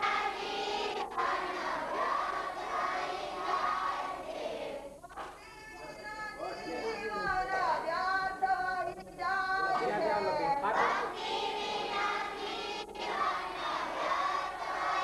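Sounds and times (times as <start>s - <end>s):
group singing a prayer in unison: 0.0s - 5.0s, 9.6s - 15.0s.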